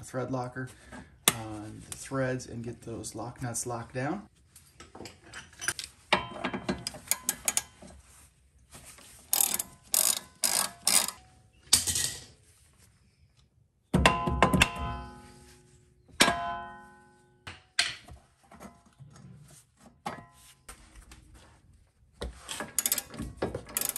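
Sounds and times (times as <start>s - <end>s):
ratchet wrench clicking: 6.9s - 7.7s, 9.3s - 11.2s, 22.8s - 23.9s.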